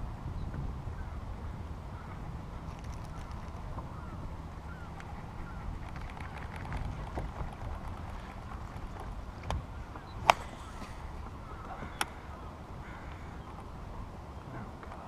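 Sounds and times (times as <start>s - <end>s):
water and wind rumble: 0.0s - 15.0s.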